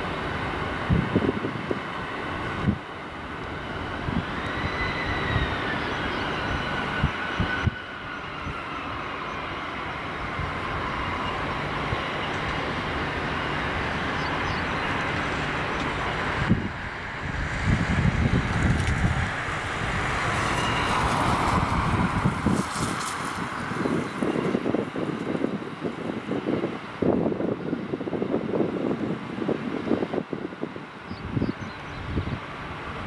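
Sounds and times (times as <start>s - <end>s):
jet rush: 0.0s - 27.2s
wind on microphone: 0.8s - 2.8s, 16.2s - 33.0s.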